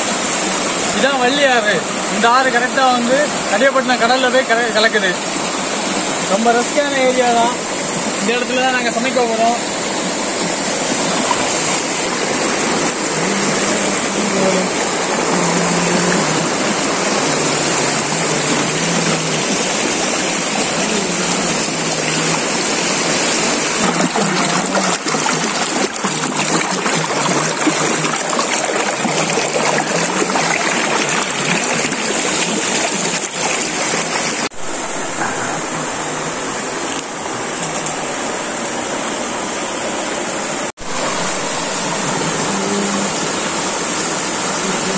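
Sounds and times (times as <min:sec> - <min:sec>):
river rushing through rapids: 0:00.0 - 0:44.9.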